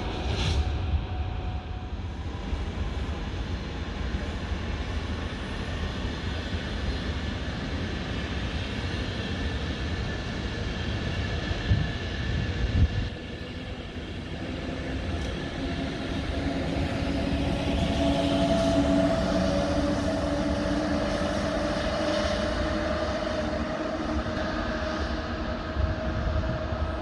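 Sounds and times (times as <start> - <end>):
train rumbling: 0.0 - 27.0
two-tone whine: 11.0 - 27.0.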